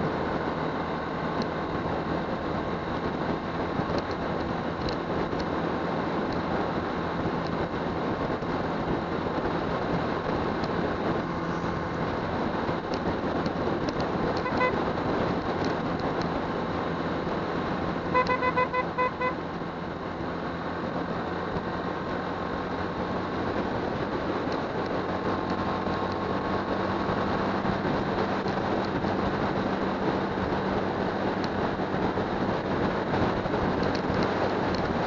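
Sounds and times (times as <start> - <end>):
low motorcycle engine hum: 0.0 - 35.0
wind and road noise: 0.0 - 35.0
vehicle horn beeping: 14.4 - 14.9, 18.1 - 19.5.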